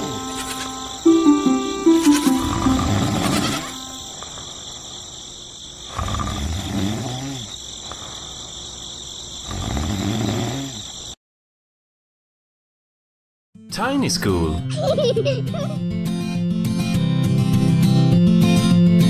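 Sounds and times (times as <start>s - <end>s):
insect chirring: 0.0s - 11.2s
low bleat-like animal voice: 2.5s - 3.8s.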